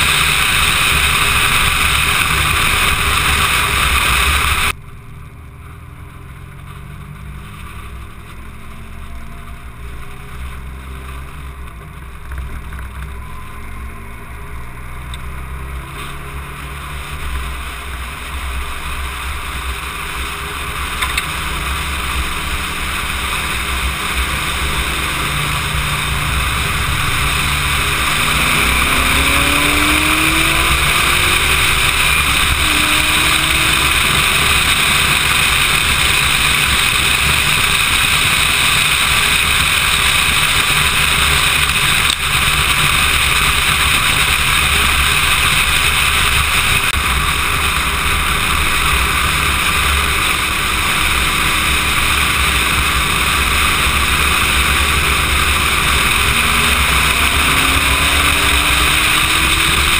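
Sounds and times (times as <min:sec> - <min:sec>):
faint car engine: 0:00.0 - 0:59.9
wind and road noise: 0:00.0 - 0:59.9.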